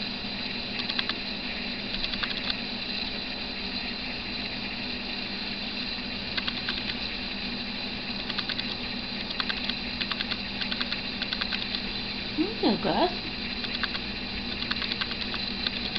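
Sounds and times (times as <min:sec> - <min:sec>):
camera hiss and hum: 0:00.5 - 0:04.0, 0:05.8 - 0:12.6, 0:13.2 - 0:15.9
rapid clicking: 0:00.8 - 0:01.2, 0:01.9 - 0:02.6, 0:06.3 - 0:07.1, 0:08.2 - 0:11.9, 0:13.5 - 0:15.9.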